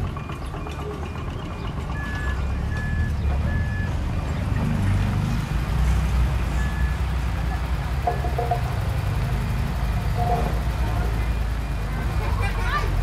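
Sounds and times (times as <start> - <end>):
reversing alarms beeping: 0.0 - 4.0, 6.5 - 9.4
heavy machinery engines rumbling: 0.0 - 13.0.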